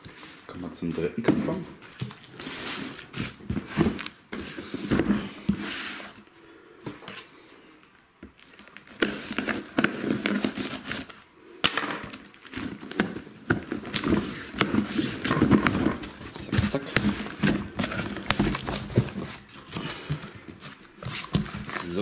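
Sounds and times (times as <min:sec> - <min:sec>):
cardboard scraping and rustling: 0:01.3 - 0:06.2, 0:12.2 - 0:22.0.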